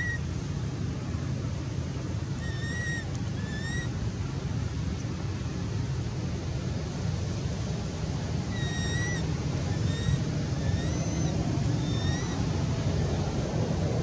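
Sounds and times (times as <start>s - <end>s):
infant monkey crying: 0.0s - 0.2s, 2.4s - 3.9s, 8.5s - 12.4s.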